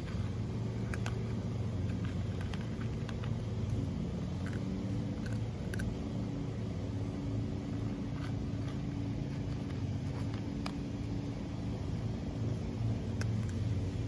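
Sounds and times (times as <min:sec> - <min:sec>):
faint steady hum: 0:00.0 - 0:14.0
road traffic rumble: 0:00.0 - 0:14.0.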